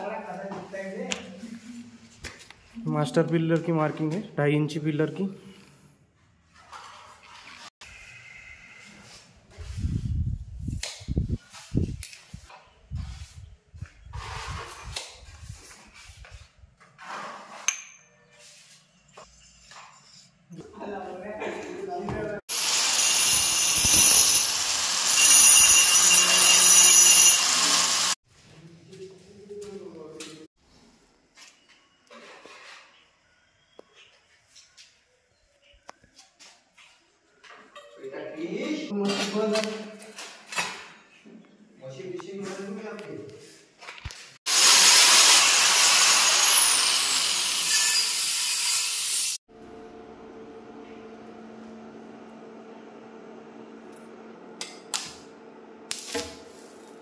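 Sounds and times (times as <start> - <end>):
angle grinder cutting tile: 22.5 - 28.2, 44.5 - 49.4.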